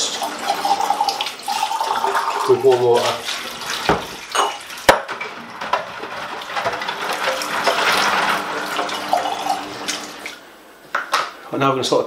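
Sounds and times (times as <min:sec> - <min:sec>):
tap water running into sink: 0:00.0 - 0:10.4
glass jar clinking: 0:04.3 - 0:04.6.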